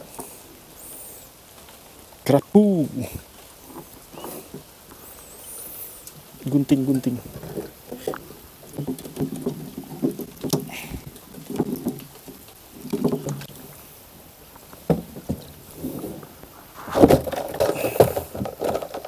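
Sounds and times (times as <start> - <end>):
knocks and scrapes on wooden hull: 7.0 - 13.8, 14.8 - 19.0.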